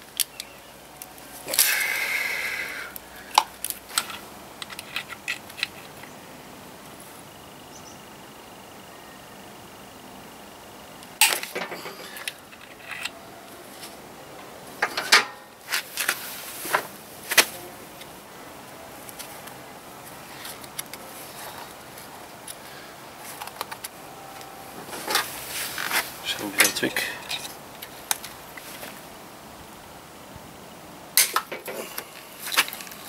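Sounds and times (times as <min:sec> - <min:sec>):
metal tools clinking and clanking: 0:11.2 - 0:13.2, 0:14.8 - 0:15.4, 0:26.5 - 0:27.6.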